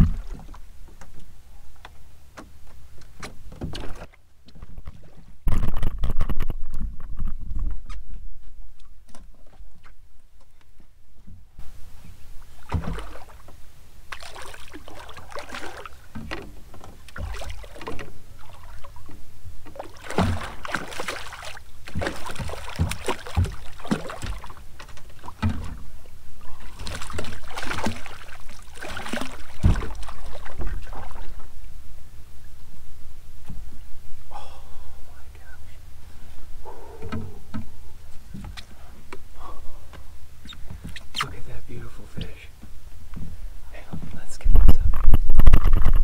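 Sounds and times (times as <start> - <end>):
dull knocks: 0.0 - 0.6, 21.8 - 25.9, 29.3 - 30.7
fish splashing in water: 12.6 - 13.5, 14.1 - 31.5.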